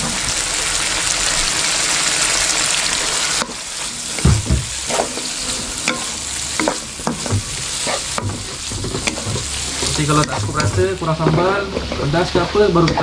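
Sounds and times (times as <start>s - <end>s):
chicken frying in hot oil: 0.0s - 13.0s
wooden spatula scraping wok: 3.2s - 13.0s
spatula knocking against pan: 5.9s - 12.0s.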